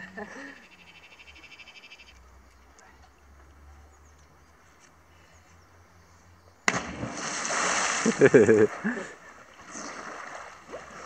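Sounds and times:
faint bird chirps: 0.4 - 6.7.

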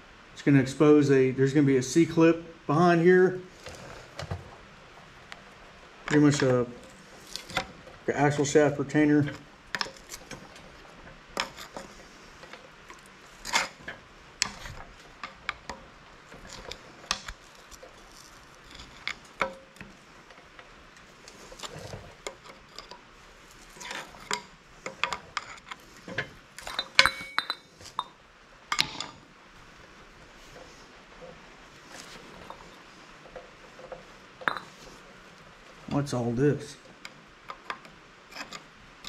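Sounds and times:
pry tool clinking on metal: 26.6 - 27.7.

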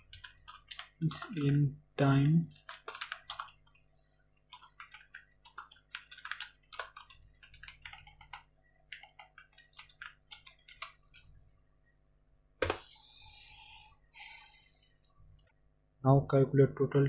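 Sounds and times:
keyboard typing: 0.0 - 1.6, 2.2 - 11.6.

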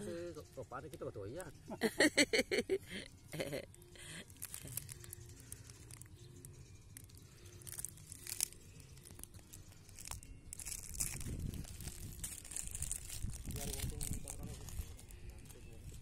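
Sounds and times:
crackles and crunches: 3.2 - 16.0
footsteps on broken shells: 4.2 - 16.0.

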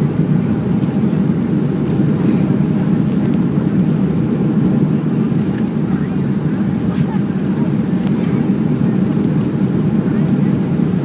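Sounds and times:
airplane cabin engine rumble: 0.0 - 11.0.

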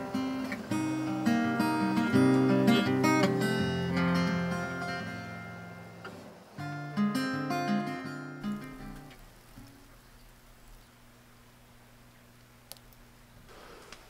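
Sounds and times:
acoustic guitar music: 0.0 - 10.0.

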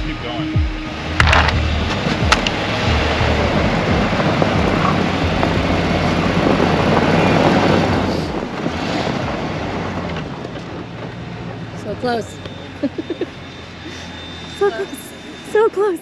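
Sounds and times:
van engine under load: 0.0 - 15.7
tyres churning snow: 0.0 - 16.0
wind on microphone: 0.9 - 10.4.

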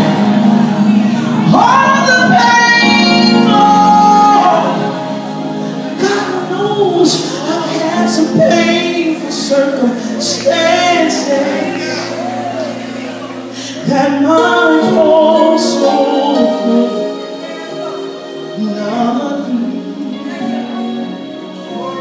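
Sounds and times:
voices singing along: 0.0 - 21.2
woman singing gospel: 0.9 - 12.8, 13.5 - 21.1.

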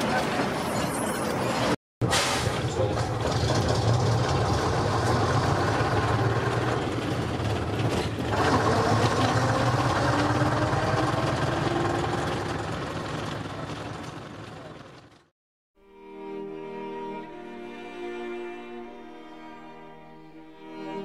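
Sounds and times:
bus engine drone: 0.0 - 15.3.

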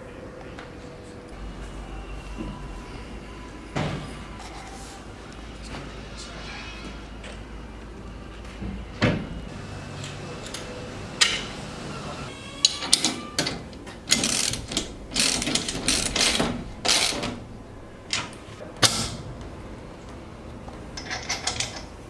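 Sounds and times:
ratchet spanner clicking: 14.1 - 17.4.

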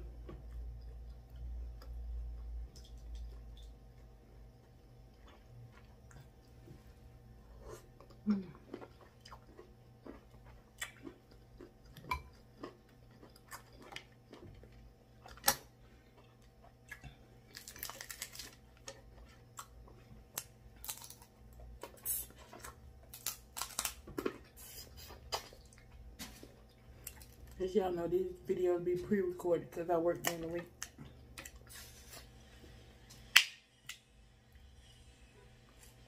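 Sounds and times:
chewing and crunching: 0.1 - 6.7, 7.5 - 27.6
crab shells cracking: 17.5 - 19.0, 20.3 - 21.7, 23.0 - 24.2.

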